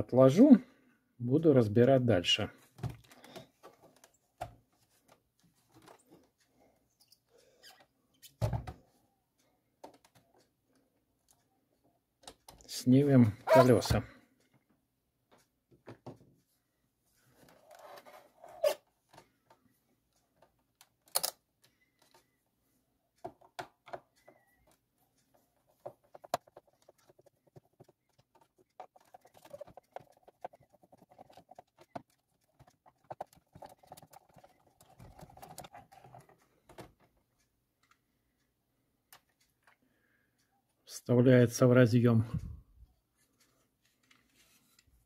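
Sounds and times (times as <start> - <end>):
plastic parts clicking and knocking: 2.7 - 6.4, 9.8 - 10.5, 12.2 - 12.7, 20.3 - 22.4, 23.2 - 38.0.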